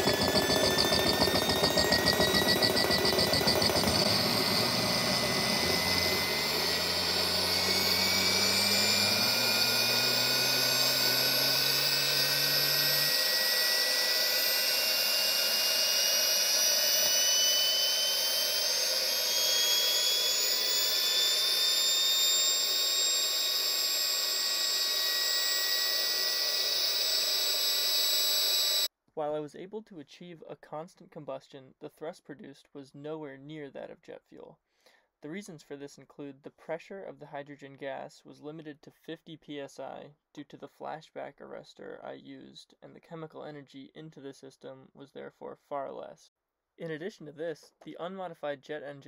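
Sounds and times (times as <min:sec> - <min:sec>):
jet turbine whine: 0:00.0 - 0:28.9
low hum: 0:00.0 - 0:28.9.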